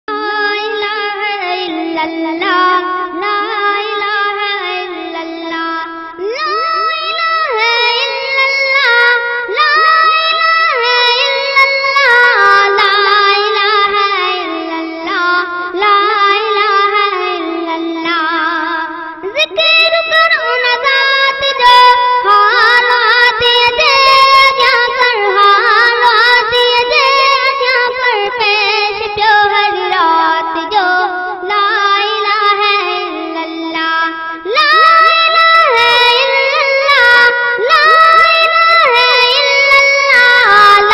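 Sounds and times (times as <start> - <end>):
boy singing a hymn: 0.1 - 40.9
overlapping vocal lines: 0.4 - 40.9.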